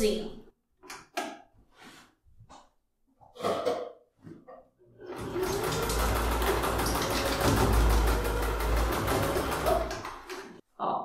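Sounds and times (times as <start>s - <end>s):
electric sewing machine stitching: 5.0s - 10.6s.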